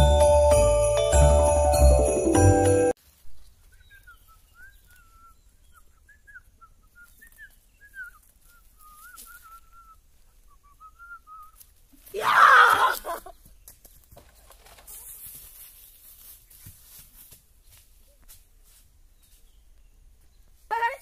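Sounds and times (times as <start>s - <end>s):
faint whistling tune: 3.7s - 11.7s
loud cry: 12.1s - 13.3s.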